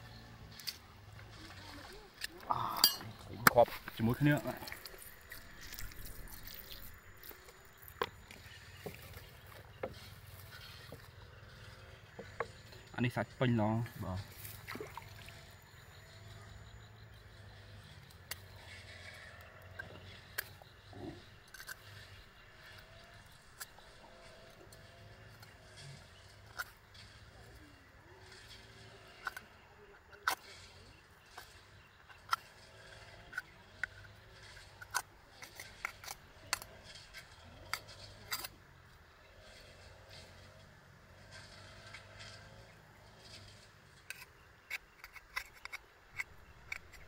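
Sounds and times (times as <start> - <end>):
metal rod scraping oyster shell: 0.5 - 12.6, 18.3 - 38.6, 41.2 - 47.0
metal rod scraping on shell: 1.9 - 8.9, 39.3 - 47.0.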